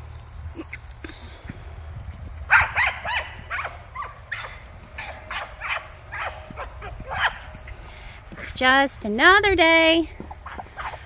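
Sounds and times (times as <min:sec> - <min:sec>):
dog yipping and barking: 0:02.5 - 0:07.5, 0:10.4 - 0:11.0.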